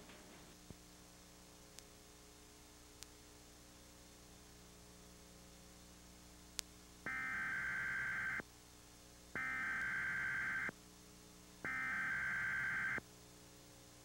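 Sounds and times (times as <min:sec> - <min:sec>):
buzzing digital data tone: 0:07.1 - 0:08.4, 0:09.4 - 0:10.7, 0:11.7 - 0:13.0.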